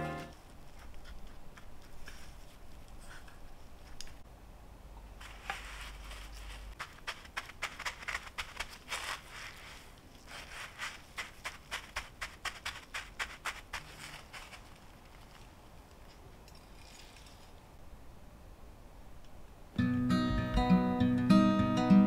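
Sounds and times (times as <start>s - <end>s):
breadcrumbs crunching: 0.3s - 4.0s, 5.2s - 15.6s.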